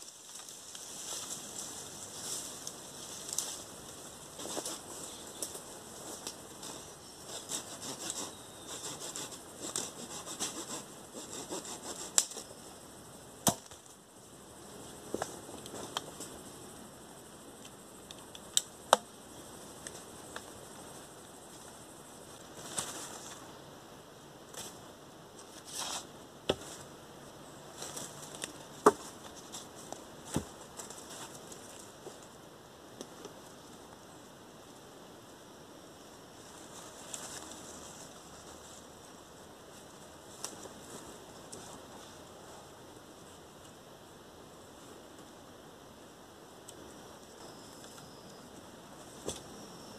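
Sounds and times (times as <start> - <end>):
dry leaves rustling and scraping: 0.0 - 10.7, 22.5 - 23.5, 27.7 - 32.2, 36.5 - 42.6
scraping and rustling: 4.3 - 12.5
knife chopping wooden branch: 13.4 - 13.8.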